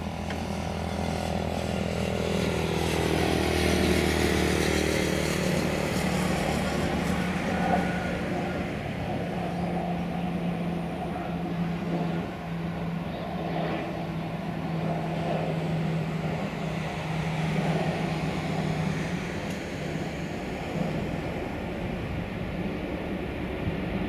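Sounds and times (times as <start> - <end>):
distant jet engines rumbling: 0.0 - 24.0.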